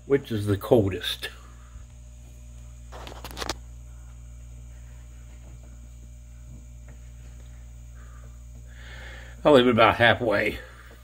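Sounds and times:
mini fridge humming: 0.0 - 11.0.

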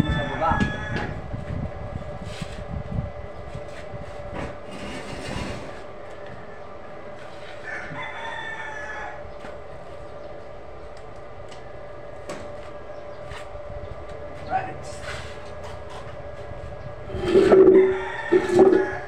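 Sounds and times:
rooster crowing: 0.0 - 1.2, 7.6 - 9.4, 17.2 - 19.0.

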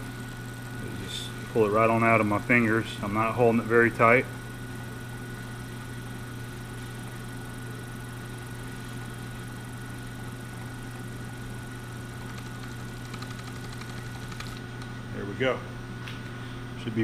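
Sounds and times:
milling spindle humming and whining: 0.0 - 17.0
cutter ticking on paper: 12.2 - 14.6.

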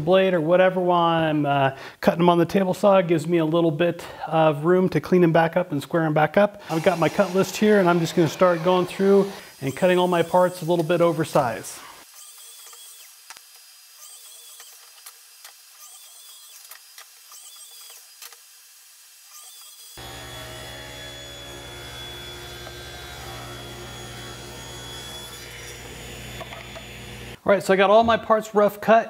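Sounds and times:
miter saw crosscutting boards: 6.6 - 27.4
table saw motor humming: 6.7 - 11.1, 19.4 - 27.4.

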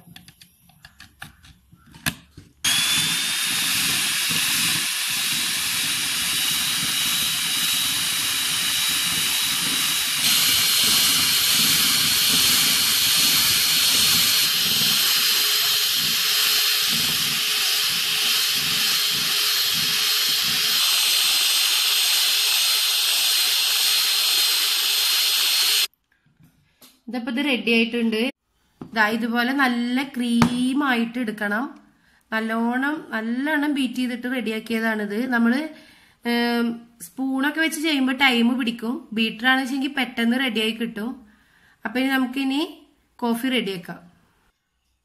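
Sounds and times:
electric hand mixer whining: 2.6 - 25.9.

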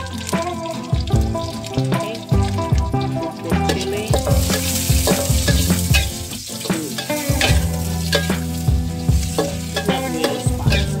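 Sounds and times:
chilies sizzling in hot oil: 0.0 - 11.0
metal spatula scraping wok: 3.6 - 11.0.

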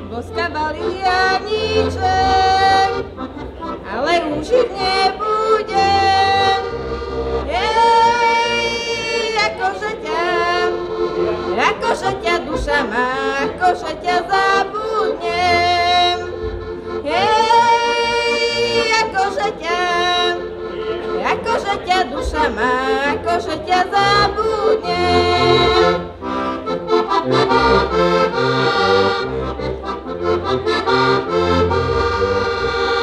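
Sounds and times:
woman singing folk song: 0.0 - 3.0, 3.8 - 6.7, 7.4 - 10.8, 11.5 - 16.3, 17.0 - 20.4, 21.1 - 26.0
button accordion chords: 0.0 - 33.0.

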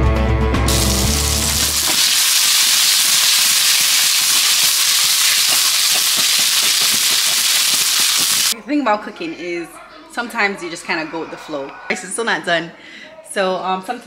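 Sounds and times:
background music: 0.0 - 2.1
food sizzling in a hot pan: 0.7 - 8.6.

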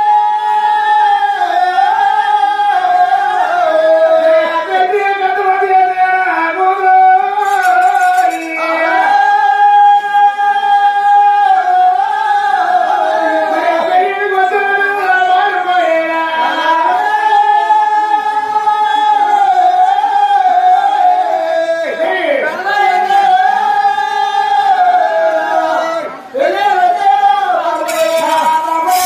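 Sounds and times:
high voice singing long notes: 22.9 - 29.0.

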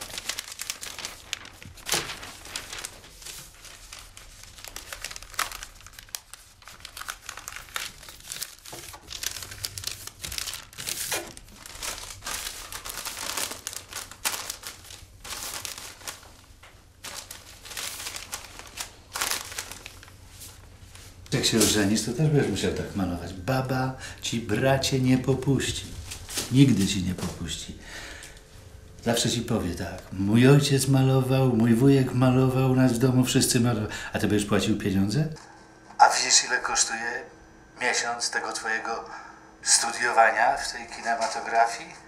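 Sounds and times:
newspaper rustling and crinkling: 0.0 - 31.0.

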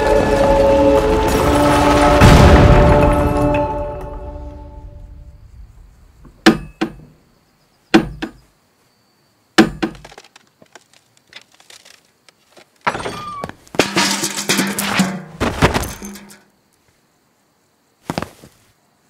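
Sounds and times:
loud noise: 0.0 - 4.0.

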